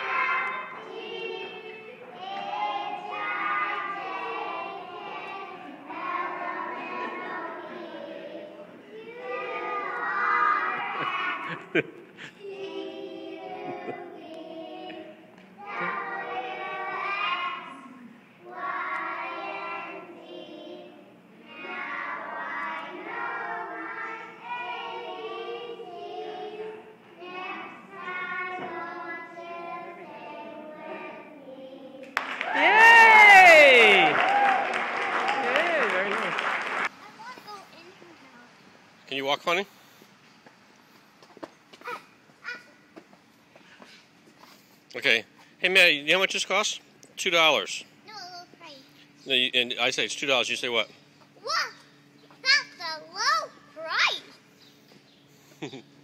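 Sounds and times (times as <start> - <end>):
children singing: 0.0 - 11.6, 12.4 - 32.2.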